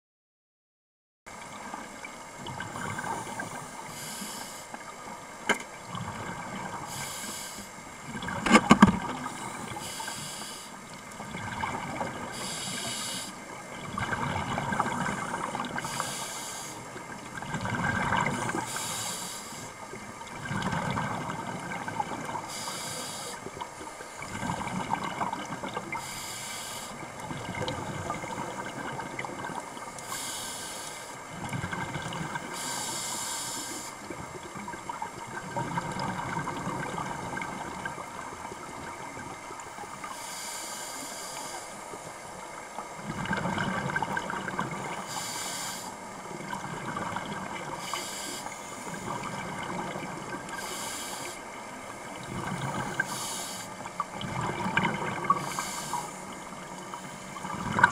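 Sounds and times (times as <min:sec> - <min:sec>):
scuba regulator hiss: 0:03.4 - 0:04.7, 0:06.9 - 0:07.8, 0:09.3 - 0:10.8, 0:12.3 - 0:13.4, 0:15.7 - 0:16.9, 0:18.4 - 0:19.8, 0:22.5 - 0:23.5, 0:26.0 - 0:27.0, 0:30.0 - 0:31.2, 0:32.5 - 0:34.0, 0:40.1 - 0:41.8, 0:45.0 - 0:46.0, 0:47.8 - 0:49.2, 0:50.6 - 0:51.5, 0:52.9 - 0:53.8, 0:55.3 - 0:56.3.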